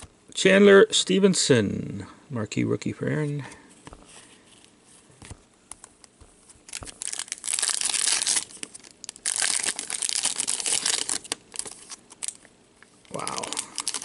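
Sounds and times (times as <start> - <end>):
wrapper crinkling and tearing: 6.6 - 14.0.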